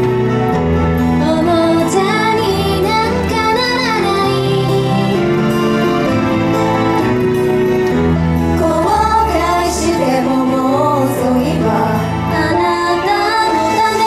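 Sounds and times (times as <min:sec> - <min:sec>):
pop backing music with bass: 0:00.0 - 0:14.0
female group singing pop: 0:01.2 - 0:05.4, 0:08.6 - 0:14.0.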